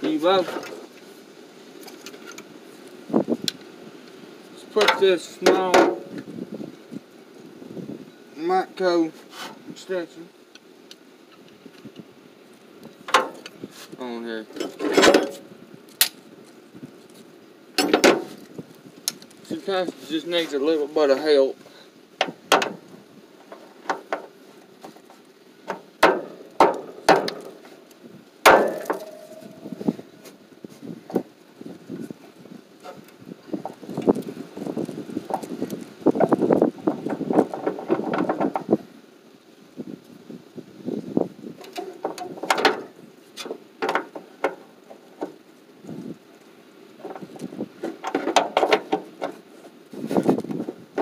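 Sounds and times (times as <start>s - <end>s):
metal tools clanking: 14.5s - 15.4s, 17.8s - 18.4s, 28.5s - 30.1s
steel tool clinking: 28.5s - 29.9s.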